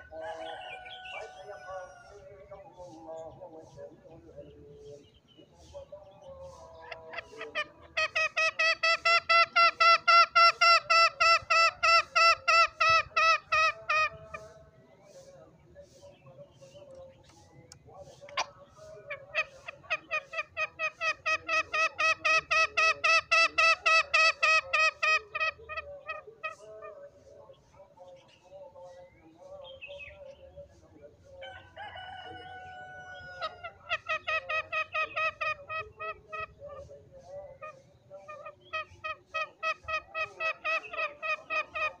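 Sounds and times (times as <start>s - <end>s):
rooster crowing: 0.0s - 2.4s, 31.4s - 33.8s
junglefowl calling rapid notes: 0.0s - 3.8s, 5.5s - 16.0s, 18.1s - 28.4s, 31.4s - 42.0s.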